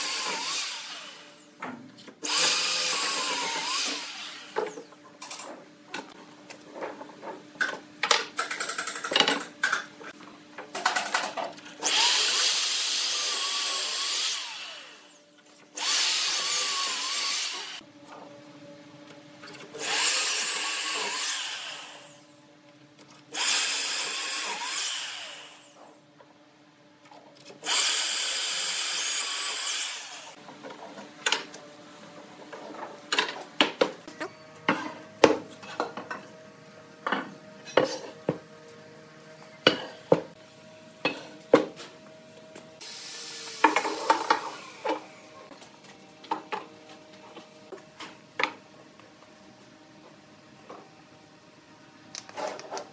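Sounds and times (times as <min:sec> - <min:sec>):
electric drill boring into wood: 0:00.0 - 0:01.4, 0:02.2 - 0:04.8, 0:11.8 - 0:15.2, 0:15.8 - 0:17.8, 0:19.8 - 0:22.2, 0:23.4 - 0:25.8, 0:27.6 - 0:30.4, 0:42.8 - 0:45.0.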